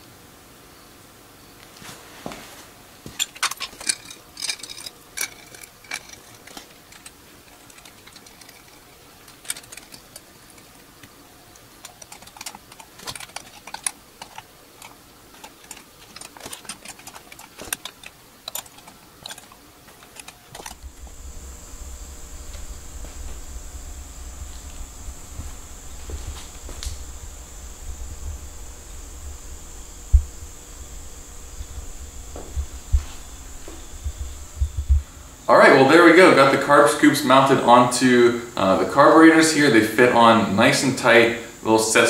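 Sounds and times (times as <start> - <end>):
low hum with high hiss: 0.0 - 42.0
metal parts clicking and clinking: 3.1 - 21.1.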